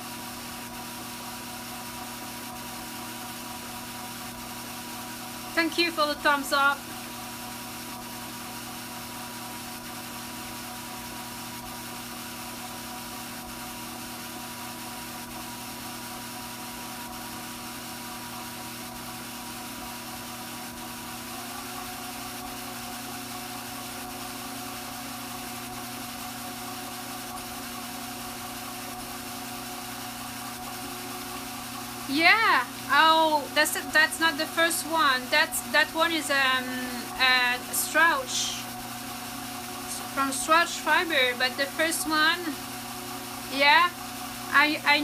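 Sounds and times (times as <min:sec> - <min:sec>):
drum carder motor humming: 0:00.0 - 0:45.0
turning drums whirring: 0:27.3 - 0:45.0.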